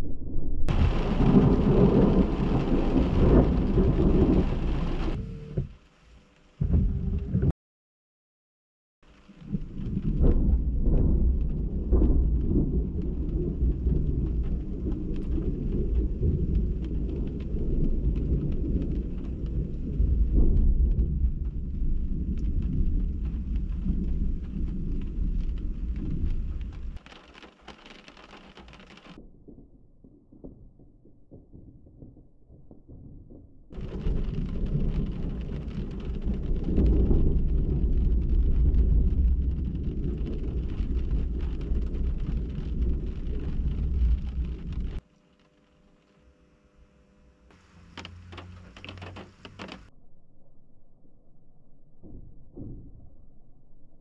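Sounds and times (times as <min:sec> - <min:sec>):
thunder rumbling: 0:00.0 - 0:05.6, 0:06.6 - 0:07.5, 0:09.2 - 0:27.0, 0:29.1 - 0:45.0
rain hiss: 0:00.7 - 0:06.6, 0:09.0 - 0:29.2, 0:33.8 - 0:49.9.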